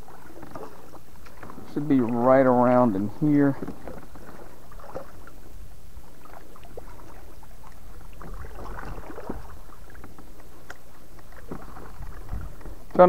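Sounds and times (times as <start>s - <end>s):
kayak paddle strokes: 0.0s - 13.0s
water splashing and dripping: 6.2s - 13.0s.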